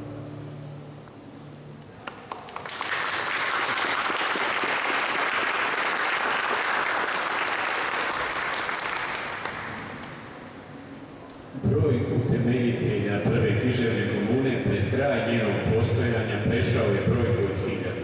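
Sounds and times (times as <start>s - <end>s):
audience applauding: 2.0s - 10.4s.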